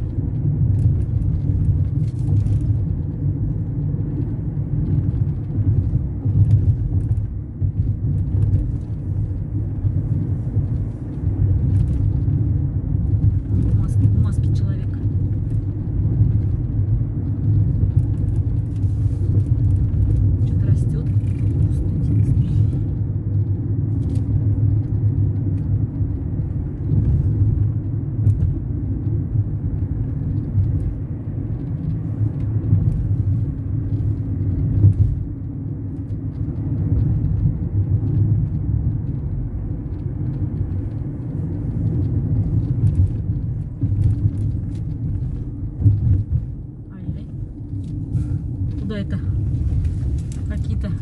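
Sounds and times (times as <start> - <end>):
car road and engine rumble: 0.0 - 51.0.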